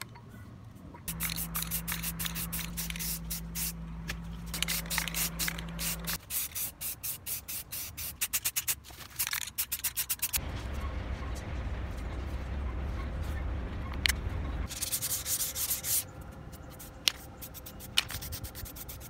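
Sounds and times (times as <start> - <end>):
steady low hum: 0.7 - 6.8
spray can hissing: 1.1 - 3.8, 4.6 - 10.4.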